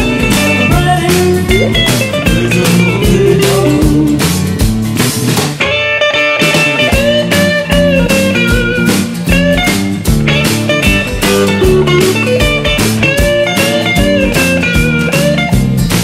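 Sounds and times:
rock song with guitar and drums: 0:00.0 - 0:16.0.

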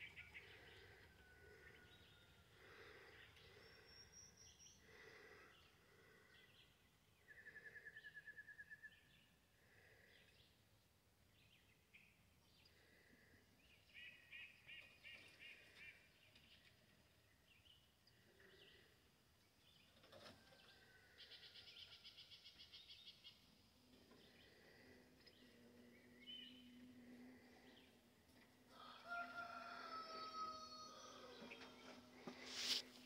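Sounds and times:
distant bird chirps and trills: 0:00.0 - 0:10.7, 0:11.3 - 0:33.0.

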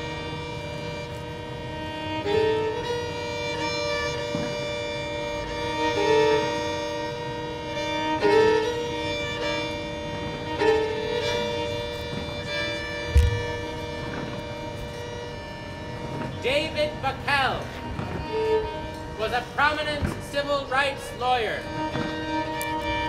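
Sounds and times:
violins playing slow chords: 0:00.0 - 0:23.0
short low thump: 0:13.0 - 0:14.4.

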